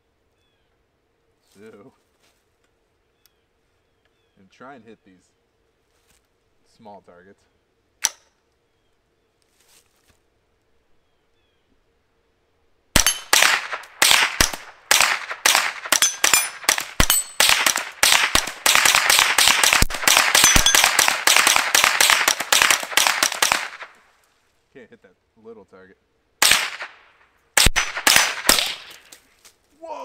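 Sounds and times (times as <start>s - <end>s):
suppressed rifle shots: 13.0s - 24.0s, 26.4s - 29.2s.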